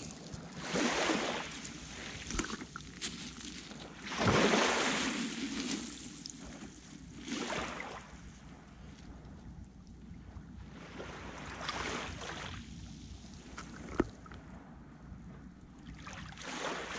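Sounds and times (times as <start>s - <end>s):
sea waves washing onto shore: 0.0s - 8.2s.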